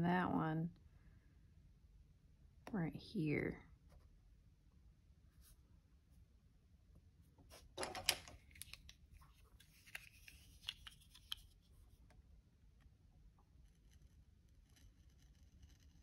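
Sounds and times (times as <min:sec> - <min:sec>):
paper rustling: 0:07.5 - 0:11.9.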